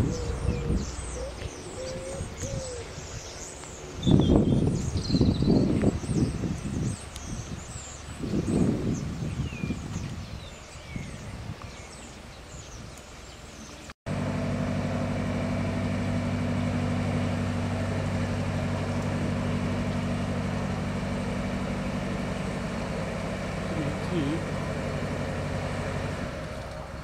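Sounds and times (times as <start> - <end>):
boat diesel engine humming: 0.0 - 4.8, 14.1 - 27.0.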